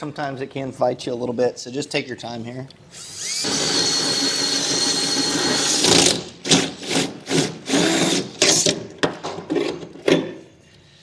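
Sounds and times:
drill cutting through metal: 0:03.0 - 0:08.6.

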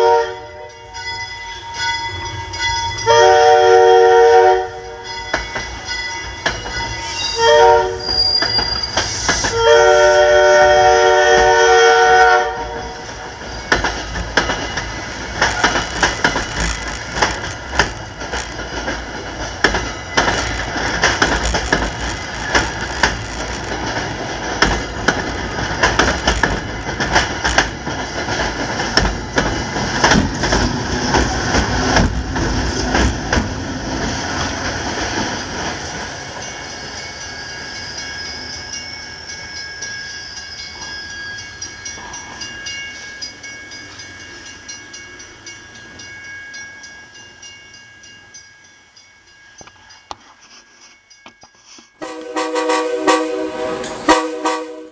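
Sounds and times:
train horn: 0:00.0 - 0:01.0, 0:03.0 - 0:05.1, 0:07.0 - 0:08.4, 0:09.1 - 0:13.0, 0:52.0 - 0:54.9
train wheels clattering: 0:04.7 - 0:38.8.

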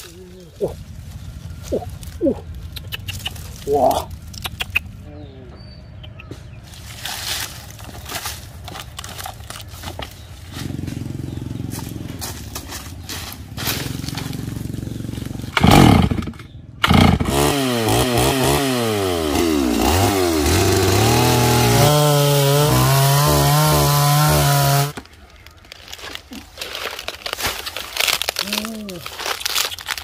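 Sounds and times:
chainsaw revving and cutting: 0:13.6 - 0:25.0.

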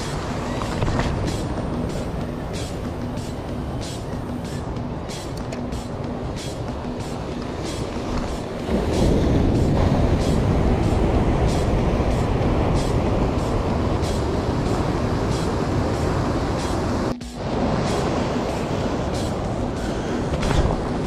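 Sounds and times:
wind rumble on microphone: 0:00.0 - 0:21.0
surf breaking over rocks: 0:06.6 - 0:21.0.

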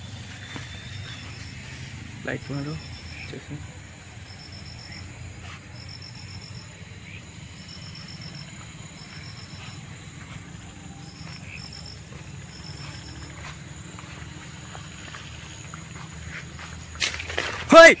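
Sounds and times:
steady low rumble: 0:00.0 - 0:17.0
insects chirping: 0:00.0 - 0:18.0.

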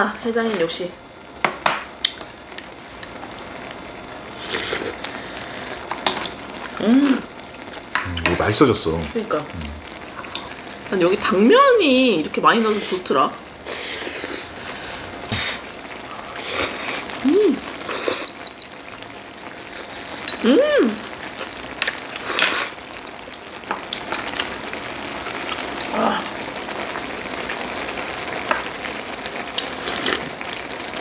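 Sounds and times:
stew simmering hiss: 0:00.0 - 0:31.0
noodles being slurped: 0:04.4 - 0:05.0, 0:29.6 - 0:30.3
person humming: 0:09.6 - 0:09.9, 0:17.2 - 0:18.0, 0:20.4 - 0:21.1.

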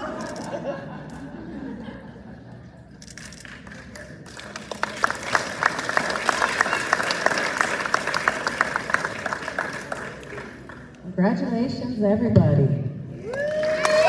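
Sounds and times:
audience applauding: 0:03.4 - 0:10.9, 0:13.2 - 0:14.0.

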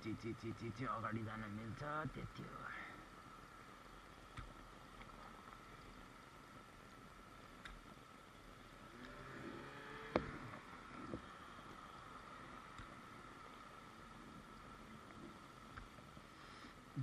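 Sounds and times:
street noise hum and whine: 0:06.1 - 0:17.0.

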